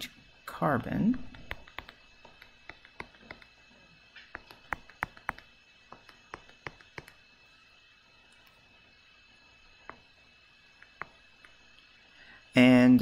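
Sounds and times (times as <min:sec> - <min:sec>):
stylus tapping on drawing tablet: 0:01.2 - 0:03.5, 0:04.3 - 0:07.2, 0:09.8 - 0:10.0, 0:10.8 - 0:11.6.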